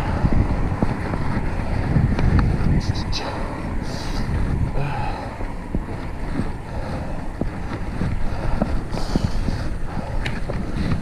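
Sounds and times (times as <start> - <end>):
tyre and road rumble: 0.0 - 11.0
wind buffeting microphone: 0.0 - 11.0.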